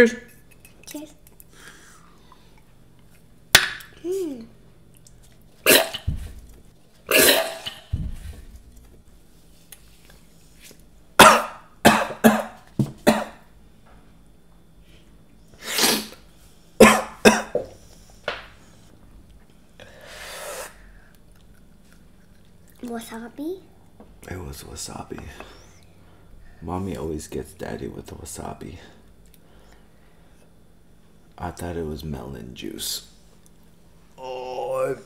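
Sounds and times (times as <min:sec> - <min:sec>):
man coughing hard: 0:07.1 - 0:07.8, 0:11.2 - 0:13.4, 0:16.8 - 0:17.6
long breathy exhale: 0:19.8 - 0:21.1.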